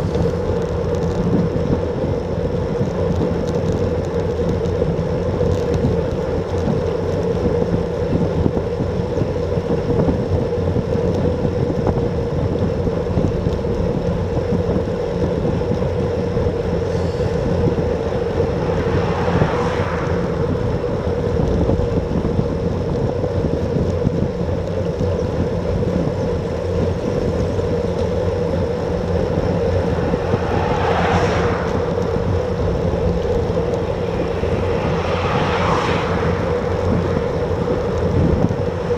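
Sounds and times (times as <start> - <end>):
wind rushing over microphone: 0.0 - 38.9
car passing: 12.8 - 22.8, 27.4 - 38.9
steady hum: 25.5 - 38.9.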